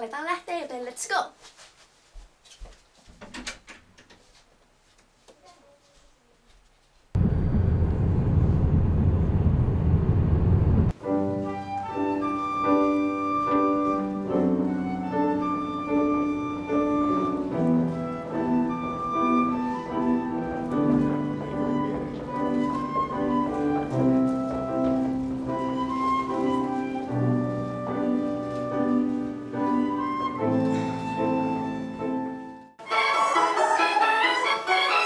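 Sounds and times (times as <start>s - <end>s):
car interior rumble: 7.2s - 10.9s
slow instrumental music: 10.9s - 35.0s.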